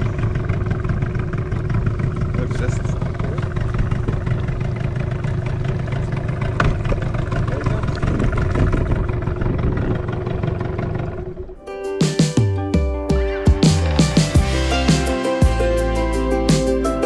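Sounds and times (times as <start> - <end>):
outboard motor running: 0.0 - 11.7.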